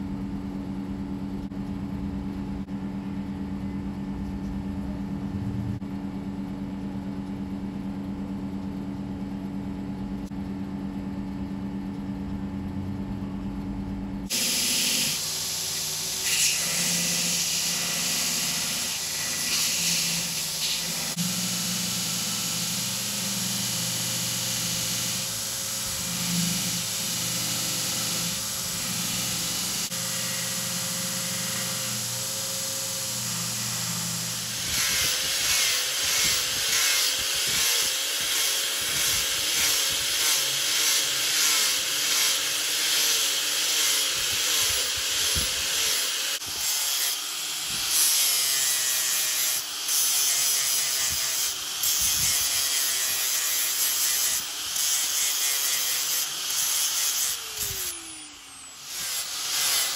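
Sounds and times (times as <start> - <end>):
disc grinder sanding horn: 14.3 - 47.2
belt grinder motor hum: 14.3 - 59.9.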